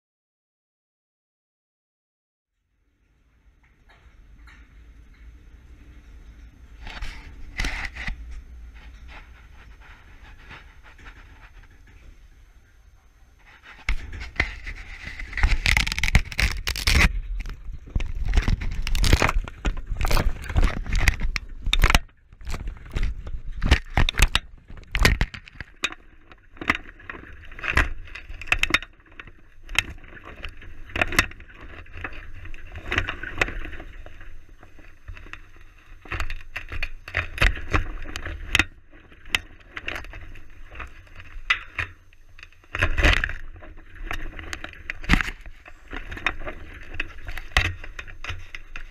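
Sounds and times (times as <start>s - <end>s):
knocks and scrapes on camera housing: 6.8s - 8.2s, 13.5s - 17.1s.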